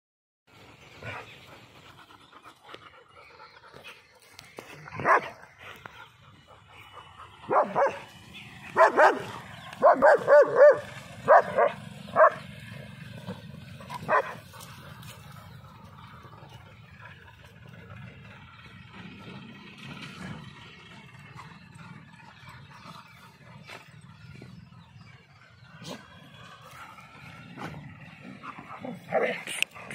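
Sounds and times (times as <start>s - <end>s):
dogs barking: 4.8s - 29.9s.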